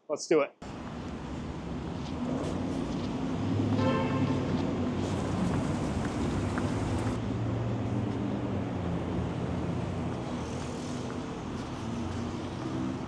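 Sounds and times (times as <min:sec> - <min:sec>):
passing traffic rumble: 0:00.6 - 0:13.0
vehicle engines humming: 0:00.6 - 0:13.0.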